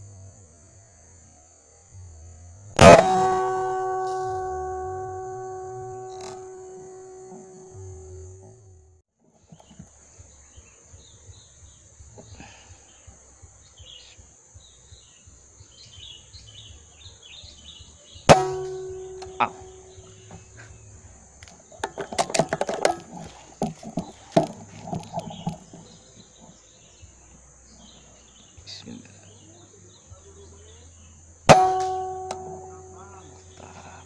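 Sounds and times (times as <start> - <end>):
air rifle shot: 2.8 - 6.6, 18.3 - 19.8
small birds chirping: 9.4 - 31.5, 32.3 - 34.0.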